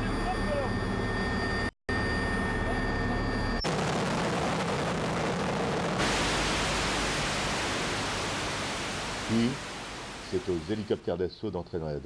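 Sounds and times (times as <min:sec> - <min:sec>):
helicopter flying overhead: 0:00.0 - 0:03.6
helicopter turbine whine: 0:00.0 - 0:10.9.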